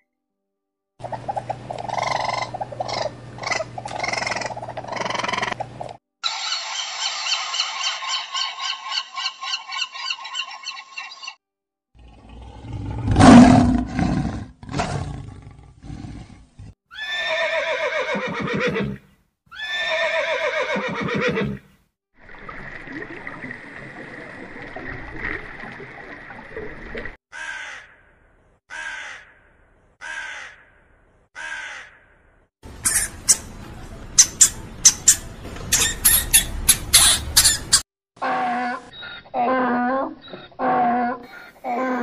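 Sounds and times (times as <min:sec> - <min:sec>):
long falling animal calls: 0:06.2 - 0:11.4
rodent clicks and squeaks: 0:34.2 - 0:37.8.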